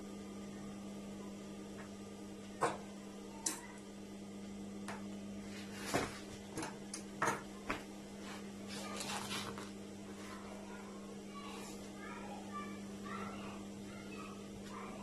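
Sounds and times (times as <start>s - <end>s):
steady low hum: 0.0s - 15.0s
cloth rustling: 8.2s - 9.7s.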